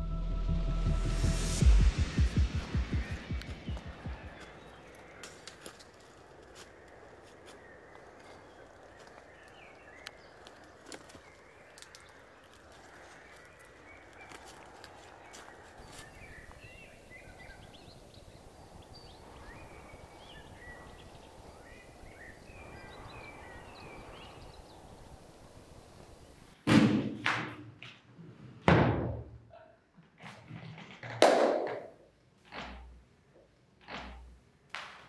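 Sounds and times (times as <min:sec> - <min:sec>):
faint forest ambience: 0:00.0 - 0:26.7
bird chirps: 0:01.7 - 0:06.4.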